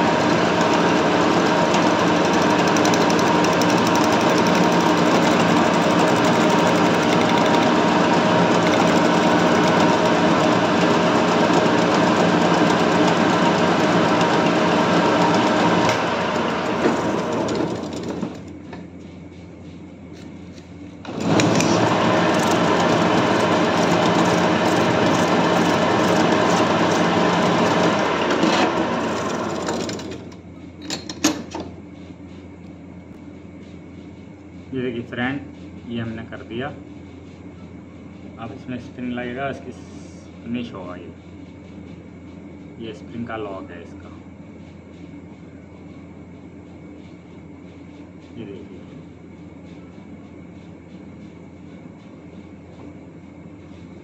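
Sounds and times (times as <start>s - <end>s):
metal lathe running: 0.0s - 18.7s, 21.0s - 31.0s.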